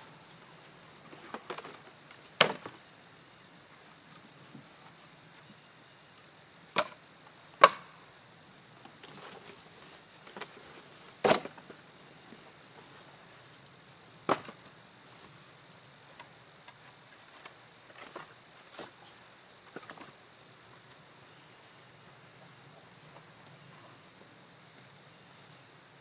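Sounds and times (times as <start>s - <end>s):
faint high-pitched hum: 0.0s - 26.0s
firewood clunking onto woodpile: 2.4s - 2.8s, 11.2s - 11.7s, 14.3s - 14.6s.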